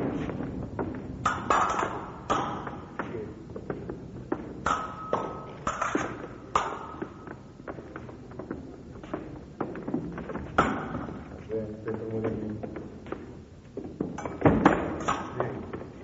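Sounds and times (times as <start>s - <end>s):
fencing blades striking: 0.0s - 9.9s, 10.5s - 11.4s, 14.1s - 15.9s.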